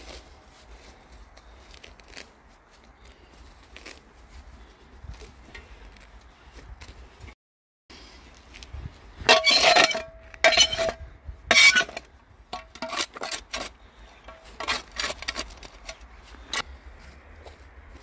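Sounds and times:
metal scoop scraping soil: 9.2 - 16.6.

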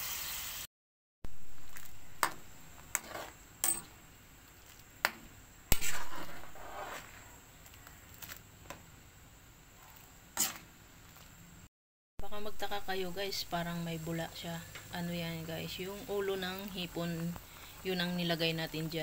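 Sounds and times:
boiling broth hiss: 0.0 - 0.7.

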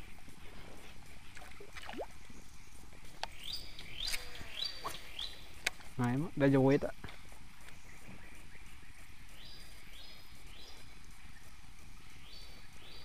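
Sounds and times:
riverside forest ambience: 0.0 - 13.0.

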